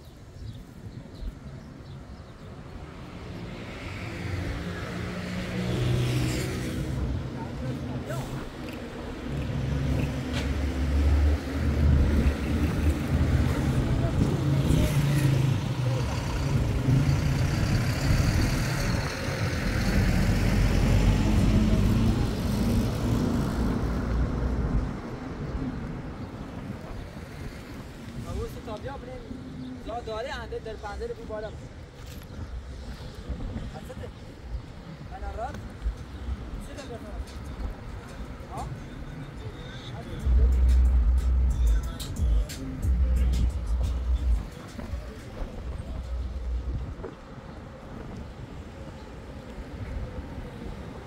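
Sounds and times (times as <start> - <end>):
car approaching: 3.1 - 31.7
vehicle engine rumbling: 3.3 - 51.0.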